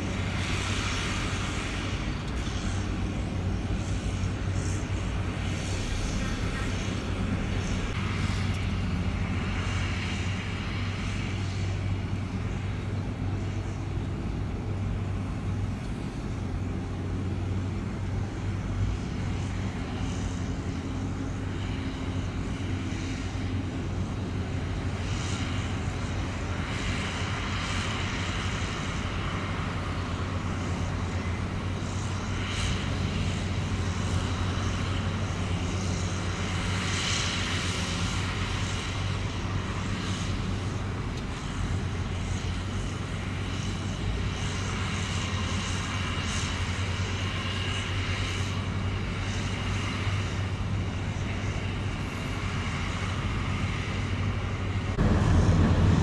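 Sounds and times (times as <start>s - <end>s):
diesel truck engine running: 50.1s - 56.0s.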